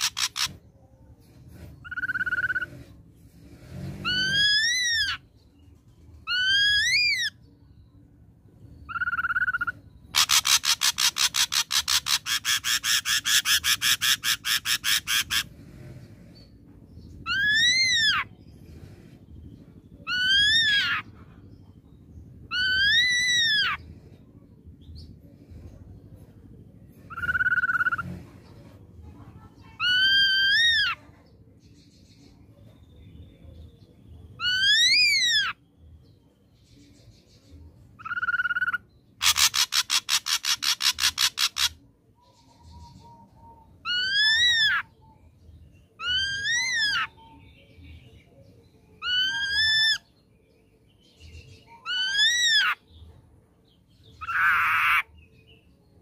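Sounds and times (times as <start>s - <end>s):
harsh bird rattle: 0.0s - 0.6s, 10.1s - 15.5s, 39.2s - 41.8s.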